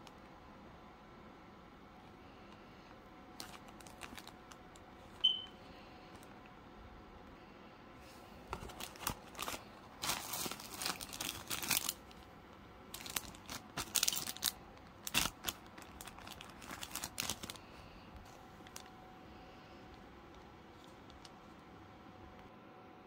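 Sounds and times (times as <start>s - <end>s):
plastic bags crinkling: 3.4s - 5.3s, 8.5s - 12.3s, 12.9s - 19.0s, 19.8s - 21.6s.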